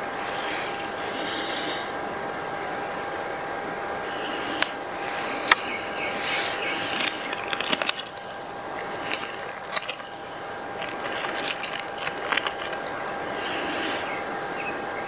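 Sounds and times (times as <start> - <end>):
steady background hiss: 0.0 - 15.0
plastic wrap crinkling: 6.7 - 13.0.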